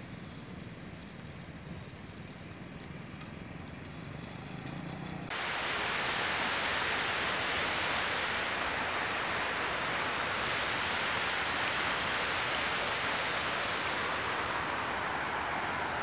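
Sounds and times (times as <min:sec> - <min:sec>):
motorcycle engine humming: 0:00.0 - 0:05.4, 0:08.5 - 0:16.0
loud rushing hiss: 0:04.4 - 0:16.0.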